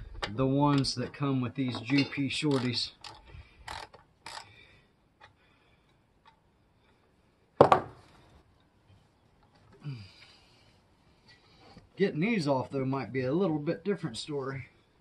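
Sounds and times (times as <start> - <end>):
metal clicks and clinks: 1.7 - 4.5.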